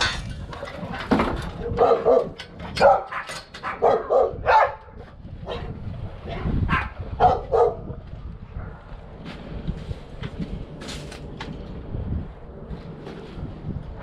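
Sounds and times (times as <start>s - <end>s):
dog barking: 1.7s - 8.0s.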